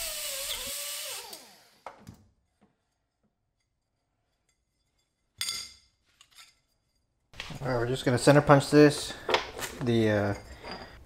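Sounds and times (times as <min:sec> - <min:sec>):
air grinder hissing and spinning down: 0:00.0 - 0:01.8.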